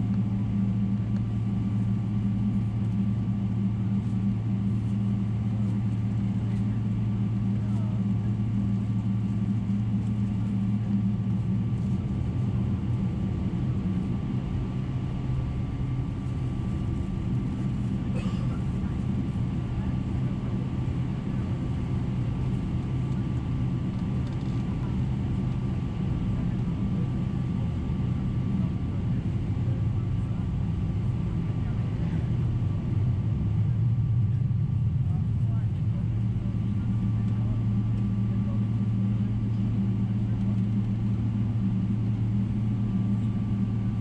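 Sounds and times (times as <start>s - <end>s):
airplane cabin engine drone: 0.0s - 44.0s.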